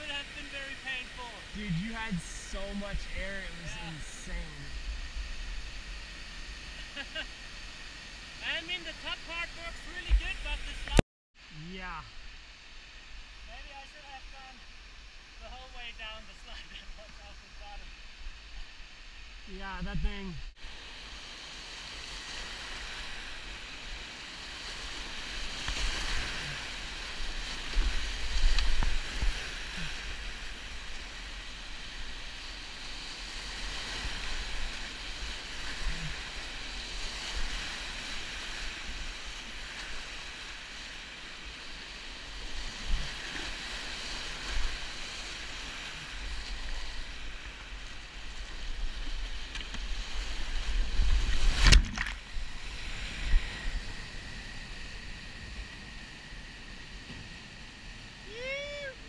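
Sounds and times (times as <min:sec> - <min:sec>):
whitewater rapids roaring: 0:58.1 - 0:59.0.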